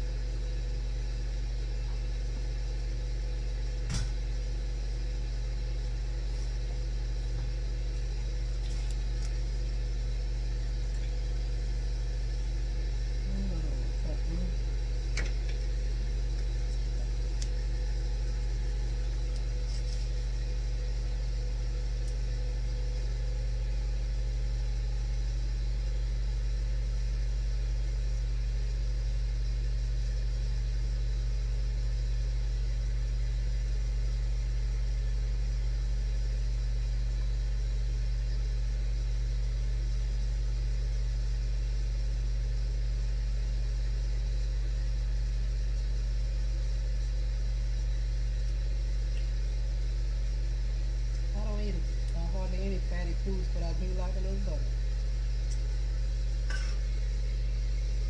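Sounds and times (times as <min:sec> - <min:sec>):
grill fan motor humming: 0:00.0 - 0:58.0
faint ticks: 0:48.4 - 0:49.3.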